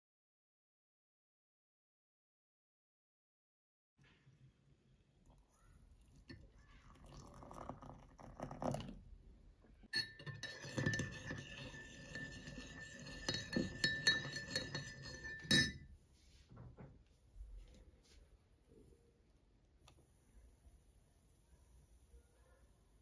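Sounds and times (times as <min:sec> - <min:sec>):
water pouring into mug: 0:05.2 - 0:09.1
spoon clinking in mug: 0:09.9 - 0:15.9.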